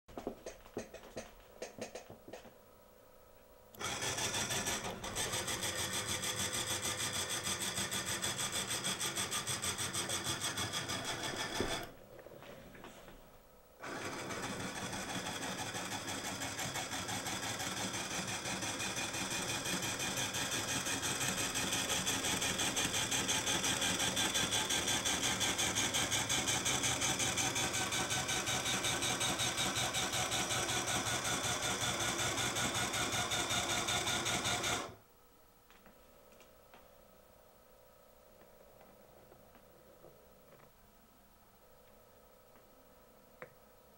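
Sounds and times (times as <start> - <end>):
electric motors whirring: 3.8 - 12.0, 13.8 - 35.0.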